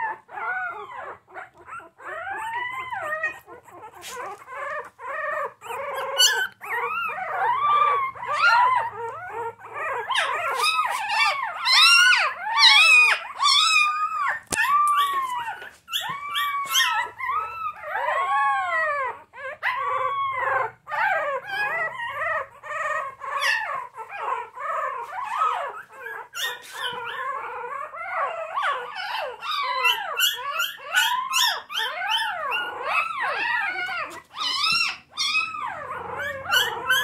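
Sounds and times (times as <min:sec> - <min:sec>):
puppies crying and whining: 0:00.0 - 0:37.0.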